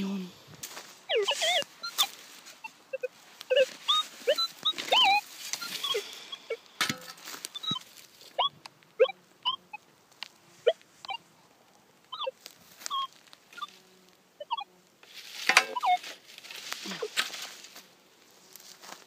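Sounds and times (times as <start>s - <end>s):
dog whining: 1.1s - 6.6s, 7.5s - 9.8s, 12.1s - 13.7s, 14.4s - 14.7s, 15.6s - 16.1s
shovel digging into soil: 6.8s - 7.9s, 15.1s - 17.6s.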